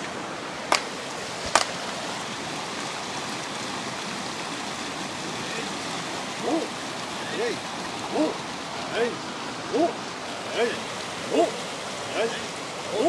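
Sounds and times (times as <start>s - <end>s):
river rapids rushing: 0.0s - 13.0s
hand claps: 1.5s - 1.7s.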